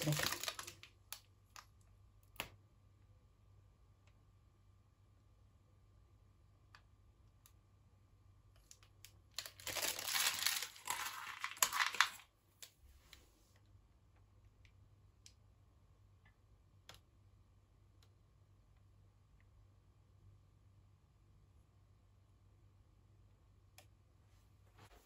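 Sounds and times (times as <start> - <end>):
plastic crinkling: 0.0 - 1.2, 9.3 - 12.3.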